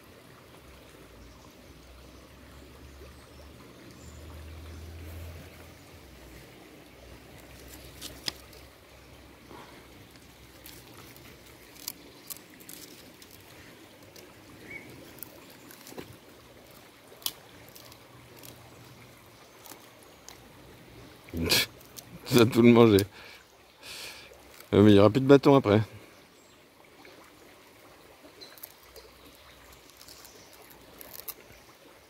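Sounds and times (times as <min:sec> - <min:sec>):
shallow stream trickling: 0:00.0 - 0:32.0.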